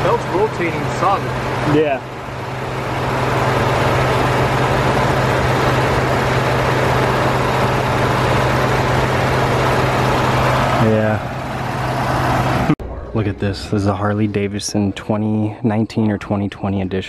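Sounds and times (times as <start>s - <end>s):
car engine idling: 0.0s - 12.8s.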